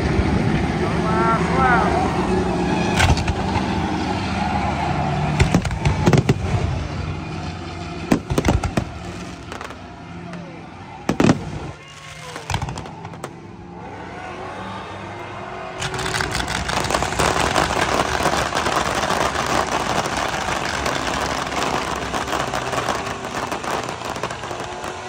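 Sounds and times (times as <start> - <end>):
car engines running: 0.0 - 25.0
fireworks crackling and popping: 2.9 - 3.8, 5.3 - 6.6, 8.1 - 9.9, 11.1 - 13.5, 15.8 - 25.0.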